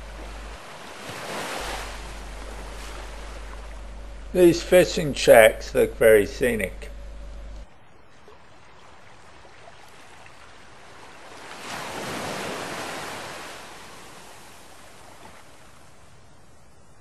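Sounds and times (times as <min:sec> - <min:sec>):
wind and water rushing: 0:00.0 - 0:05.3, 0:08.4 - 0:16.2.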